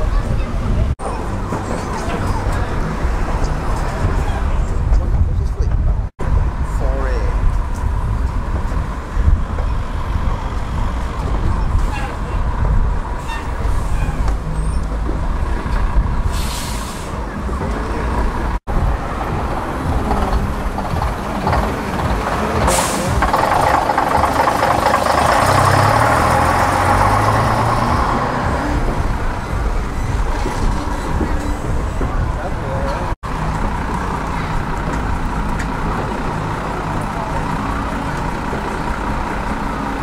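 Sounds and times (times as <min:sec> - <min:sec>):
bus engine pulling away: 0:00.0 - 0:05.4, 0:07.3 - 0:40.0
bus diesel engines running: 0:00.0 - 0:40.0
air brake hisses: 0:16.3 - 0:17.2.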